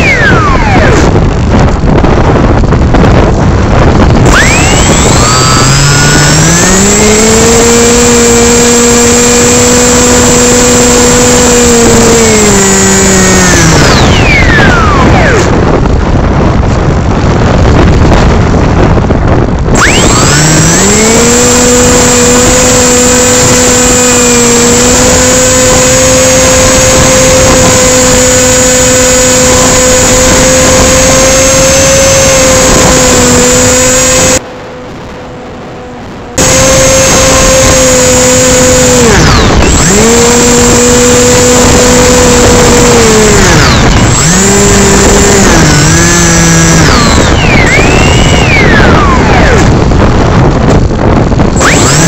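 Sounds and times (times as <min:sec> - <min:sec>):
model plane motor whining: 0:00.0 - 0:52.0
wind rush over microphone: 0:00.0 - 0:52.0.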